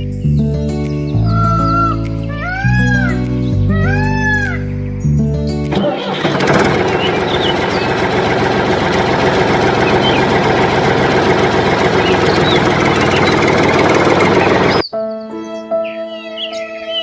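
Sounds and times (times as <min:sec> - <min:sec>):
faint bird chirps: 0:01.0 - 0:05.2
diesel tractor engine running: 0:05.7 - 0:14.9.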